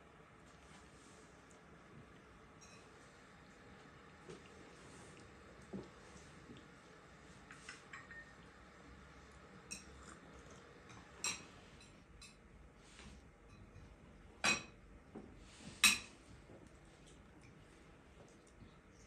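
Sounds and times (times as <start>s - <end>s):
utensils clinking on dishes: 2.6s - 2.9s, 7.6s - 8.4s, 9.7s - 10.0s, 10.8s - 12.4s.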